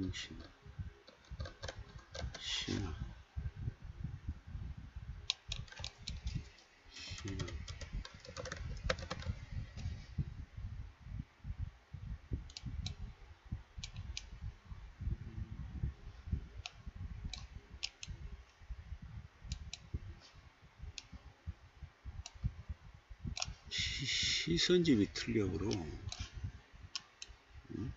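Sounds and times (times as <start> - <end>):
mouse clicking: 1.1 - 2.4, 5.3 - 6.4, 7.1 - 9.9, 12.5 - 13.0, 13.8 - 14.3, 16.6 - 18.2, 23.3 - 23.6, 27.0 - 27.4
typing on keyboard: 1.1 - 2.4, 7.1 - 9.4.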